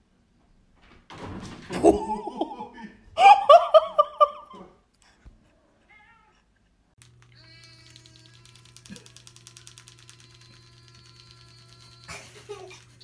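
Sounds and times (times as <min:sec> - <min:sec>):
person laughing high-pitched: 0:01.8 - 0:04.8, 0:11.9 - 0:13.0.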